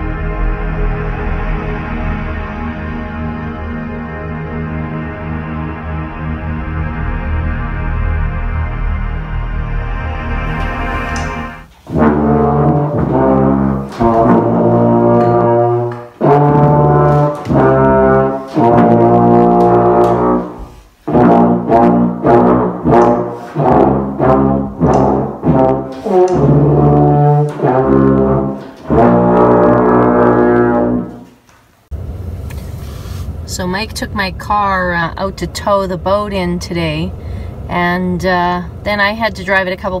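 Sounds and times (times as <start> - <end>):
tuba and brass horn playing: 0.0 - 31.4.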